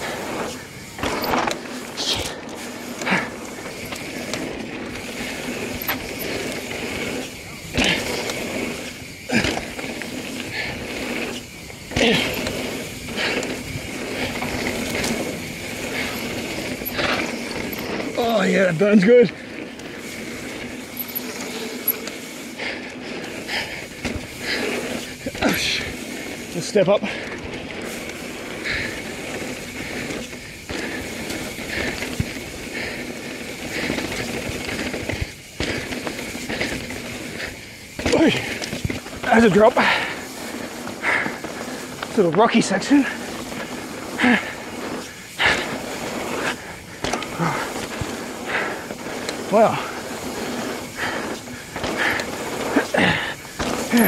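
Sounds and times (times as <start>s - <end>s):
bike tyres rolling on dirt: 0.0s - 54.0s.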